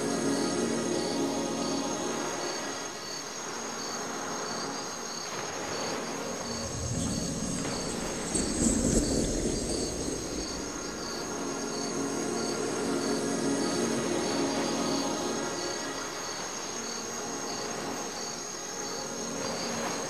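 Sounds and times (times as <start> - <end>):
continuous high insect trill: 0.0 - 20.0
crickets chirping: 0.0 - 20.0
low rustling rumble: 6.5 - 11.8.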